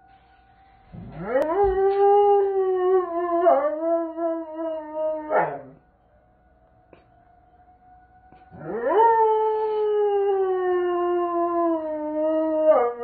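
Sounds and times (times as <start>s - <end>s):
tornado siren tone: 0.0s - 13.0s
dog howling: 1.0s - 5.8s, 8.3s - 13.0s.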